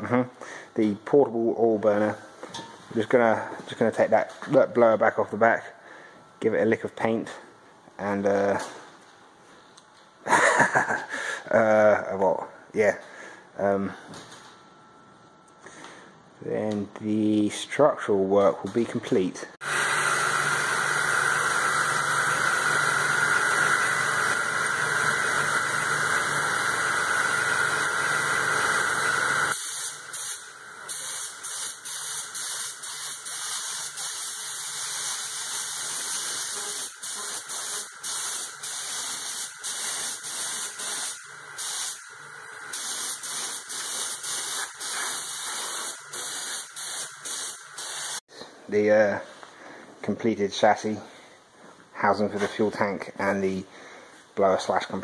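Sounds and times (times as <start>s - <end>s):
motor humming: 19.6s - 29.5s
spray gun hissing: 19.6s - 42.1s, 42.7s - 48.2s.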